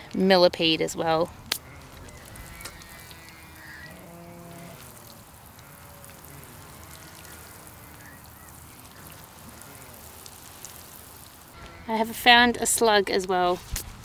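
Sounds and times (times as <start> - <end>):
water sprinkling onto soil: 1.1 - 11.8
bird calling: 1.6 - 10.4.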